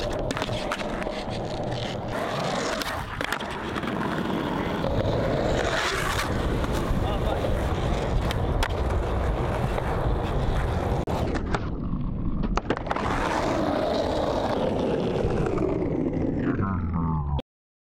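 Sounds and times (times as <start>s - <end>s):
skateboard clacks: 0.0s - 11.7s
skateboard wheels rolling on concrete: 0.0s - 16.4s.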